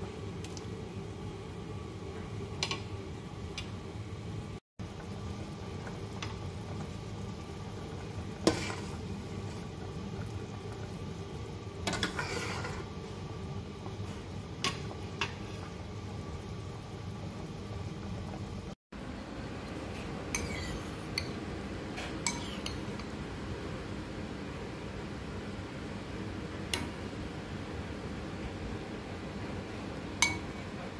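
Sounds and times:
low steady hum: 0.0 - 30.9
cutlery clinking on cookware: 20.3 - 21.4, 22.0 - 23.1, 30.2 - 30.6.

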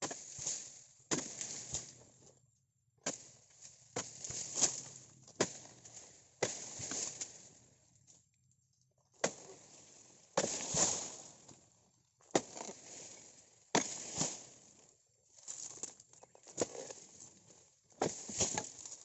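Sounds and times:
chisel chopping palm stalks: 0.0 - 2.0, 3.0 - 7.5, 9.2 - 11.5, 12.2 - 14.7, 15.7 - 17.1, 18.0 - 19.0.

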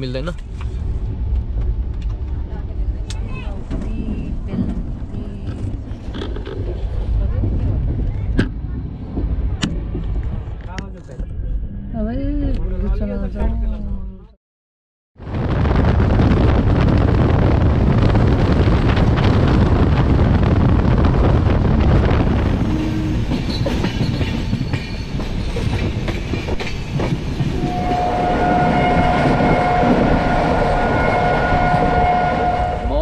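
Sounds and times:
train rumbling along track: 0.0 - 14.1, 15.2 - 33.0
train horn: 27.6 - 33.0.

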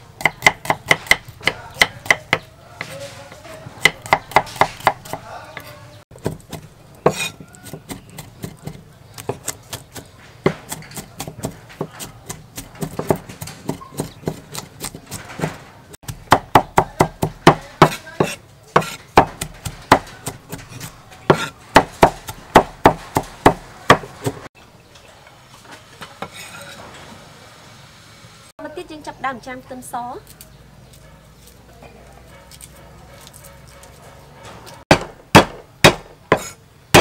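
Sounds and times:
cleaver chopping on wooden board: 0.2 - 3.0, 3.8 - 5.2, 6.2 - 15.2, 16.0 - 24.4, 34.9 - 37.0.

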